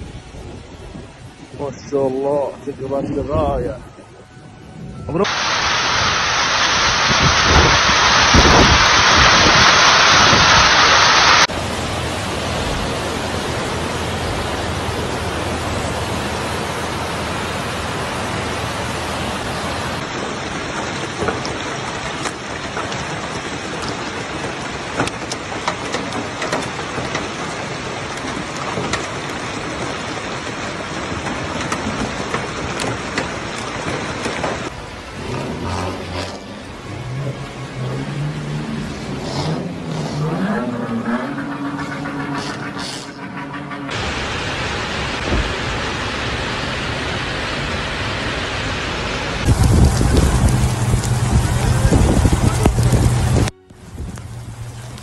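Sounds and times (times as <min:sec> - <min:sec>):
hail and rain falling: 0:05.3 - 0:35.2, 0:44.0 - 0:55.0
hailstones ticking on hard surfaces: 0:20.1 - 0:34.8, 0:49.4 - 0:53.3.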